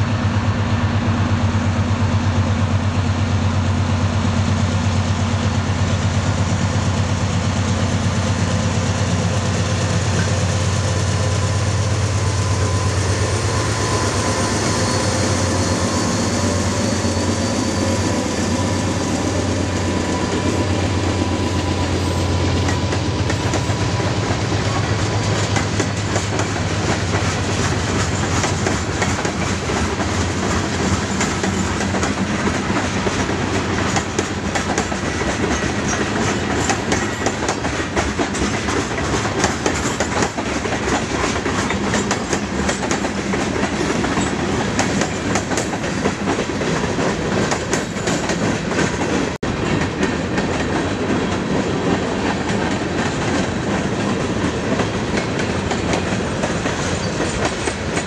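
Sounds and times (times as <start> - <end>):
freight train wheels rumbling: 0.0 - 58.0
clickety-clack over rail joints: 21.2 - 58.0.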